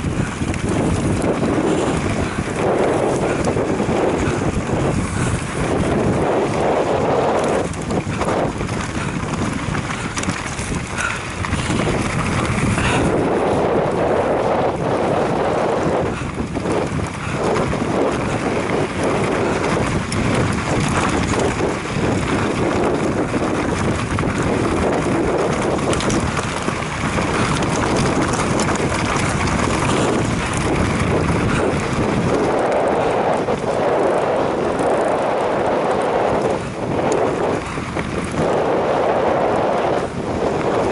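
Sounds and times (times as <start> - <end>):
tyres rattling over rough dirt: 0.0 - 40.9
wind rushing over microphone: 0.0 - 40.9.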